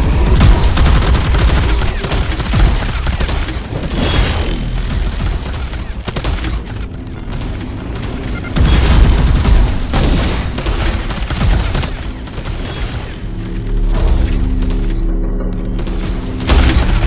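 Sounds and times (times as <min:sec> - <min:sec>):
sci-fi energy weapon shots: 0:00.3 - 0:13.2.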